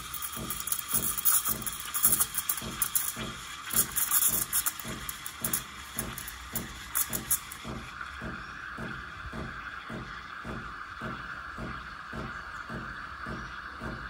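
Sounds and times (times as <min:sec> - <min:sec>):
steam wand hissing in milk: 0:00.0 - 0:08.0
crackling chirps of milk frothing: 0:00.0 - 0:10.4.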